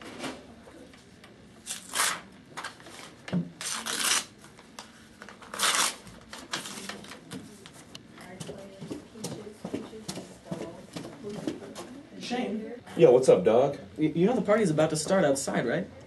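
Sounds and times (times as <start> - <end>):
paper rustling: 4.8 - 7.9.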